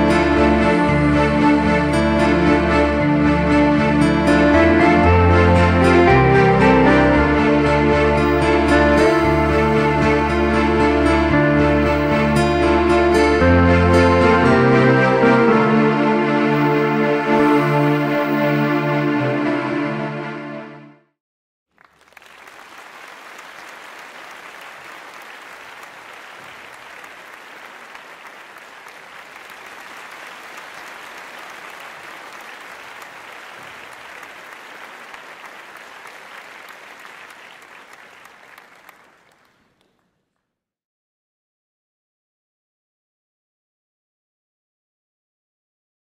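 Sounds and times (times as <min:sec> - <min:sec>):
music: 0:00.0 - 0:21.2
crowd applause: 0:21.7 - 0:40.2.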